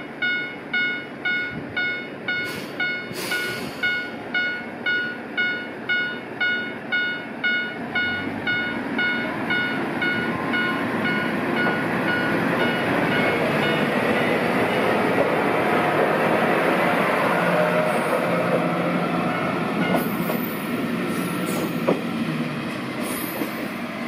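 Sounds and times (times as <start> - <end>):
railcar engine and wheels rumbling: 0.0 - 24.0
level-crossing bell dinging: 0.2 - 13.9.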